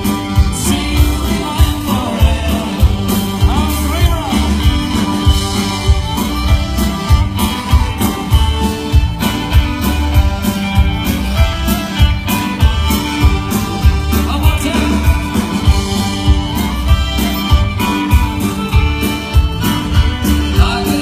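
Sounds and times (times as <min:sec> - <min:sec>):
live country band playing: 0:00.0 - 0:21.0
lead vocal singing: 0:00.2 - 0:04.6, 0:20.5 - 0:21.0.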